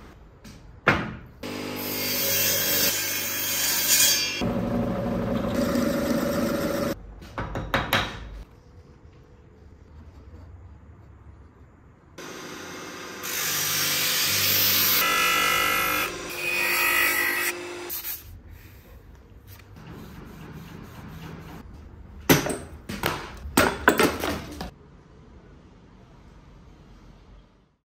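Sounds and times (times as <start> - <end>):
power tool running: 4.4 - 7.0, 12.2 - 16.4.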